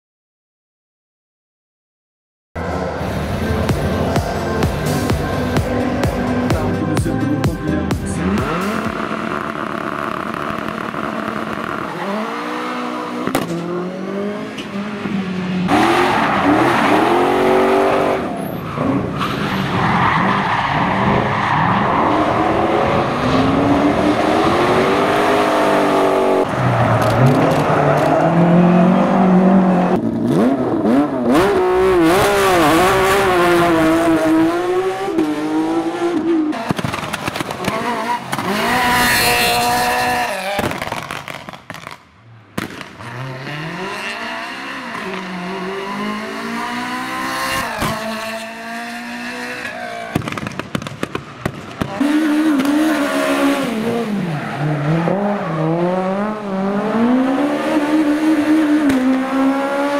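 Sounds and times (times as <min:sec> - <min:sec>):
rally car engine revving: 0:02.6 - 0:42.0, 0:42.6 - 0:50.6, 0:51.7 - 0:59.9.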